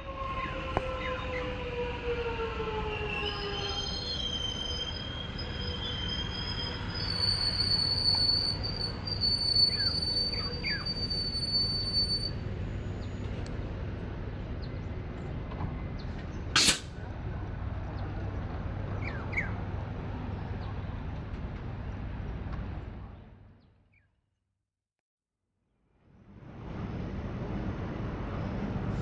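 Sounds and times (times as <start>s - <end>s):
train rumble: 0.0s - 23.6s, 26.0s - 29.0s
brakes squealing: 2.9s - 13.6s.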